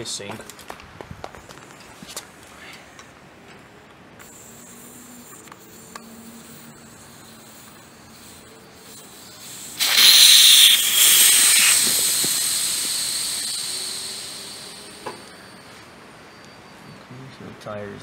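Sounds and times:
air hissing from tire valve: 0:04.2 - 0:15.6.

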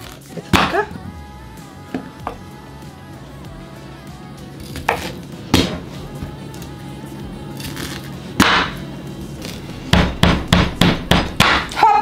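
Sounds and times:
knife chopping on wooden board: 0:09.9 - 0:11.7.

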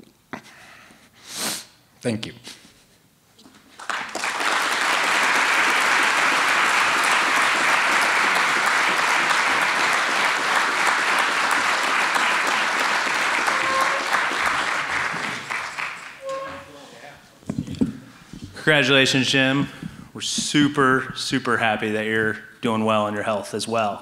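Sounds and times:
audience applauding: 0:03.7 - 0:16.4.

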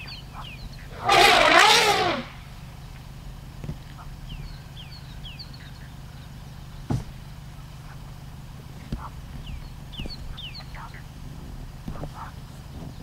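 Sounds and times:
vehicle engine idling: 0:00.0 - 0:13.0
bird calling falling whistles: 0:00.9 - 0:02.6.

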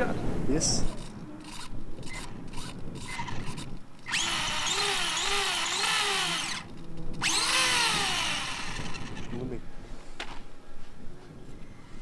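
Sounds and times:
toy truck motor whining: 0:01.0 - 0:09.4.

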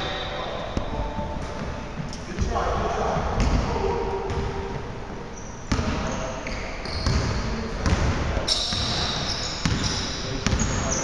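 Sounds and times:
basketball bouncing on wooden floor: 0:05.7 - 0:06.0, 0:07.0 - 0:09.0.

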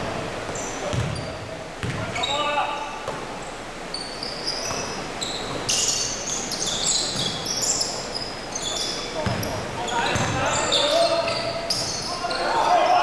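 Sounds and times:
basketball bouncing: 0:00.9 - 0:02.1, 0:07.1 - 0:07.4, 0:09.2 - 0:10.4
shoes squeaking on wooden floor: 0:03.9 - 0:12.6.

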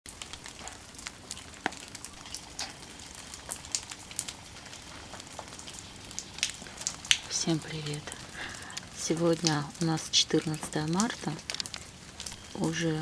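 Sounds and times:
drips tapping on foliage: 0:00.1 - 0:13.0
wet snow hissing on foliage: 0:07.5 - 0:08.8.

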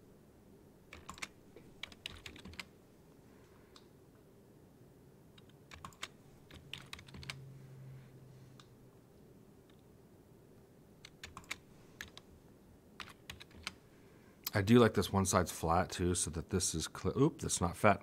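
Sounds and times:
keyboard keys clicking: 0:00.9 - 0:02.7, 0:05.4 - 0:07.4, 0:11.0 - 0:12.2, 0:13.0 - 0:13.8.

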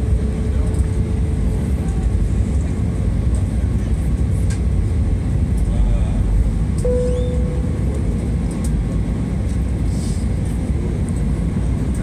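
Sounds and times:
airliner engine roar in cabin: 0:00.0 - 0:12.0
steady mid-pitched whine: 0:05.3 - 0:09.4.

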